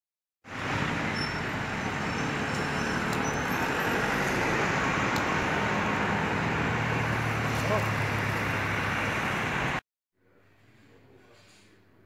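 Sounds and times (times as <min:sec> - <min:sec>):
street traffic hum: 0:00.4 - 0:09.8.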